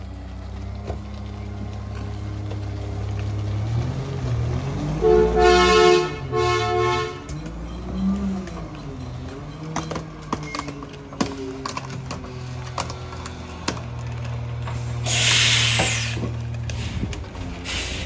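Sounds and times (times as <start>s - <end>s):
garbage truck diesel engine: 0.0s - 18.0s
clanks and rattles: 7.1s - 17.7s
air brakes hissing: 14.7s - 18.0s.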